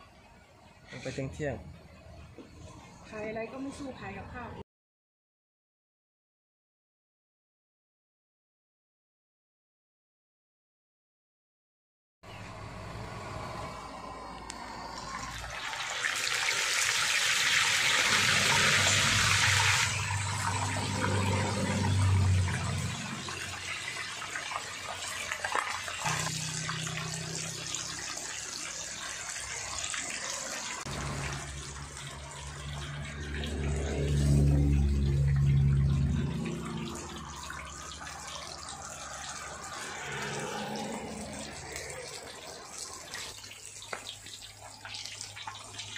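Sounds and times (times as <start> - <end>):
fish deep-frying in hot oil: 12.5 - 45.9
oil bubbling and crackling: 12.5 - 45.9
low hum: 30.9 - 38.2.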